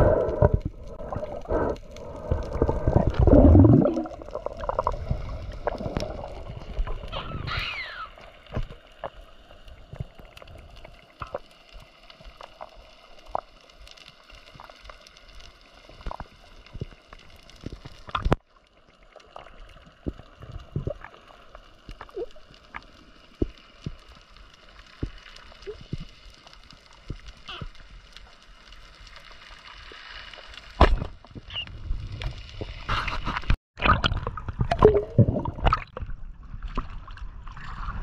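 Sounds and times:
water sloshing and gurgling: 0.0s - 28.3s, 28.9s - 38.0s
small clicks and pops: 8.4s - 18.5s, 19.2s - 32.4s.

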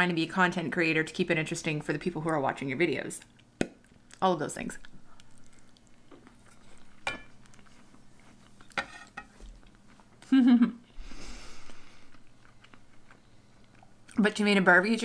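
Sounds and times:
soft breath: 10.9s - 12.2s.

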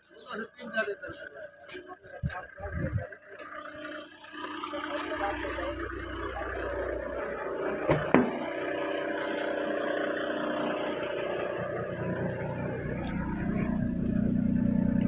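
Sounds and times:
car engine idling: 0.1s - 15.0s
sharp knocks: 7.9s - 8.5s.

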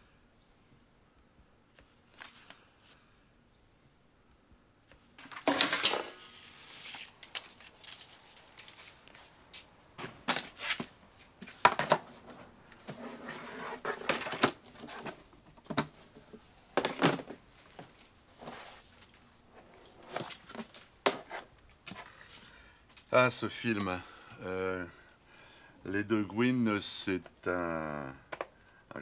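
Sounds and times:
metal film cans clattering: 5.2s - 8.1s.

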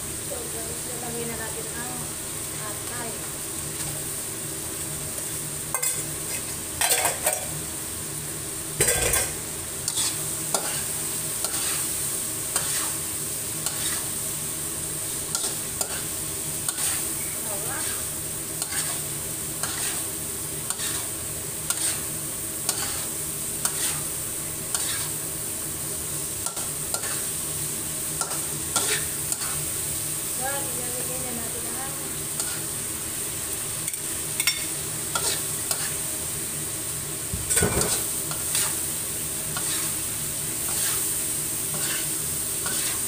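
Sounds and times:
meat sizzling: 0.0s - 43.0s
metal spatula scraping a wok: 8.8s - 13.0s, 13.6s - 14.2s, 15.3s - 25.3s, 28.2s - 29.7s, 32.2s - 32.8s, 33.9s - 36.0s, 37.5s - 38.9s, 39.5s - 43.0s.

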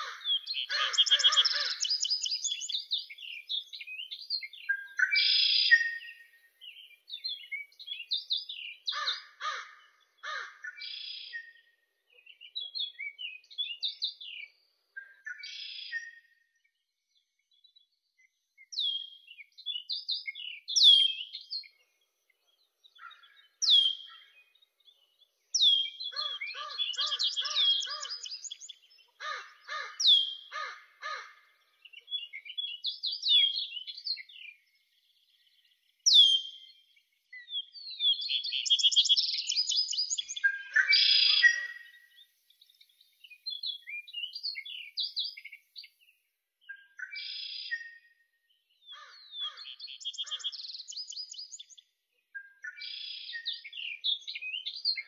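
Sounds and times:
songbirds chirping and trilling: 0.0s - 55.0s.

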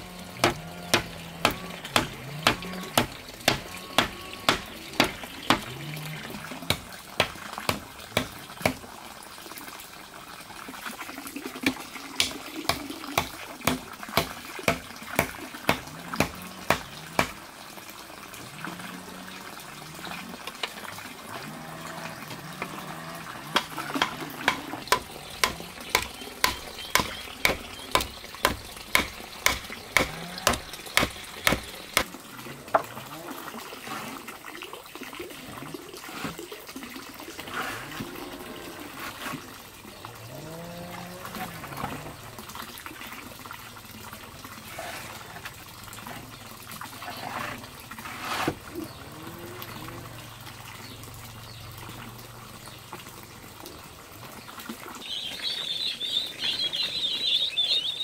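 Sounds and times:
hammer driving stakes: 0.3s - 5.7s, 23.5s - 32.1s.

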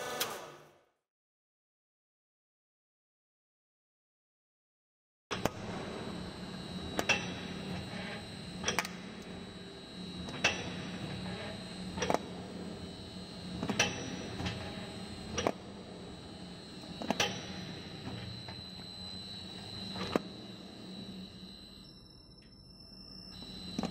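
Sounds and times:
machine motor hum: 5.3s - 23.9s.

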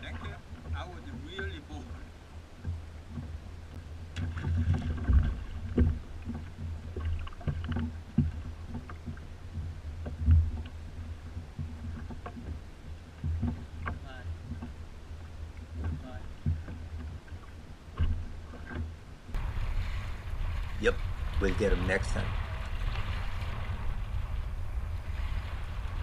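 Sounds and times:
knocks and bumps in kayak: 0.0s - 26.0s
water lapping against a kayak: 0.0s - 26.0s
steady low rumble: 12.6s - 26.0s.

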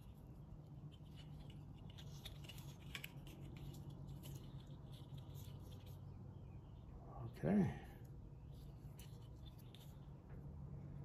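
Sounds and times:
tape crinkling and clicking: 0.0s - 6.1s
low steady hum: 0.0s - 11.0s.

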